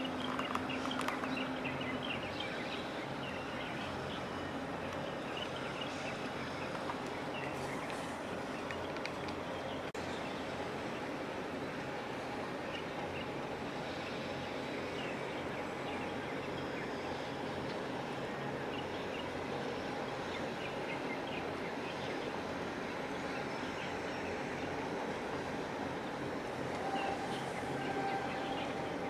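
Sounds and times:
ship engine droning: 0.0s - 29.0s.

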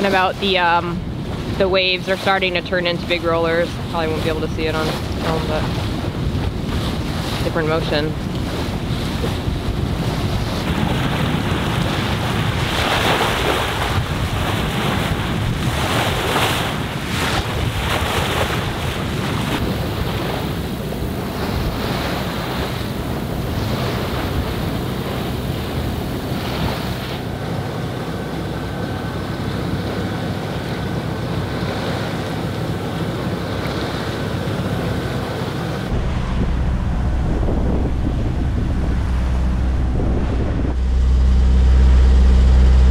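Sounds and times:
waves sloshing along boat hull: 0.0s - 42.9s
wind buffeting microphone: 0.0s - 42.9s
faint high whine: 35.9s - 42.9s.

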